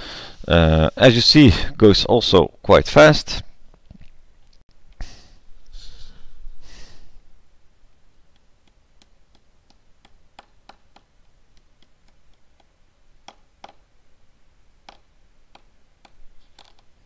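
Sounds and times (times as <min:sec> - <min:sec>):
low room hiss: 0:00.0 - 0:17.0
small clicks and ticks: 0:14.8 - 0:16.9.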